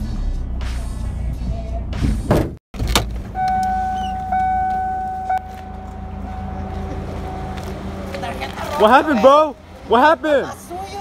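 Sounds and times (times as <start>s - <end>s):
car engine rumbling: 0.3s - 11.0s
high-pitched tone: 3.4s - 8.6s.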